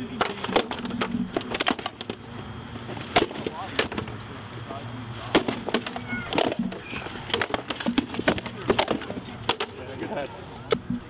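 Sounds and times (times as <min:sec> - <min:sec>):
stick swords striking shields: 0:00.1 - 0:02.2, 0:03.0 - 0:04.1, 0:05.2 - 0:09.8.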